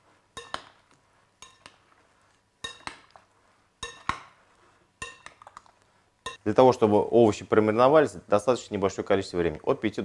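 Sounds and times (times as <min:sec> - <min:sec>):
metal spoon clinking against glass bowl: 0:00.4 - 0:00.7, 0:01.4 - 0:01.8, 0:02.6 - 0:03.1, 0:03.8 - 0:04.3, 0:05.0 - 0:05.5, 0:06.2 - 0:06.5.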